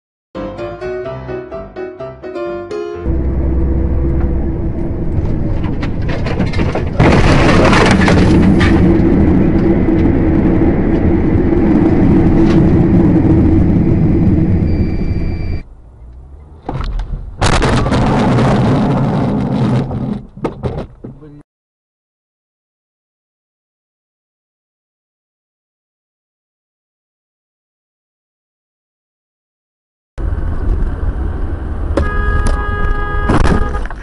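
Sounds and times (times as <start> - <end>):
vehicle engine drone: 3.0 - 20.0, 30.2 - 34.0
road and wind noise: 3.0 - 21.4, 30.2 - 34.0.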